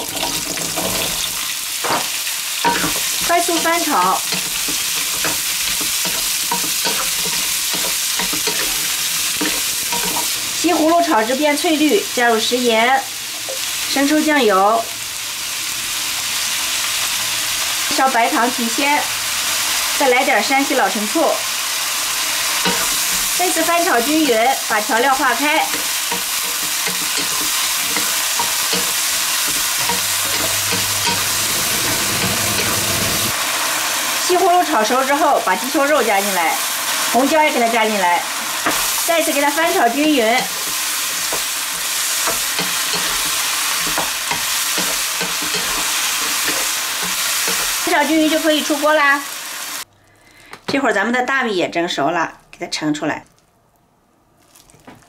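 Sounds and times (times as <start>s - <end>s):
vegetables sizzling in hot oil: 0.0s - 49.9s
spatula knocking and scraping pan: 0.3s - 10.5s, 22.6s - 33.4s, 38.6s - 39.1s, 39.7s - 47.9s.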